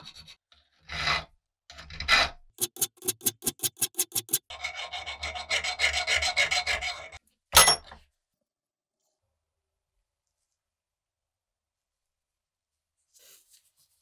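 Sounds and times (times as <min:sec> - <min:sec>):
filing strokes on workpiece: 0:02.0 - 0:07.2.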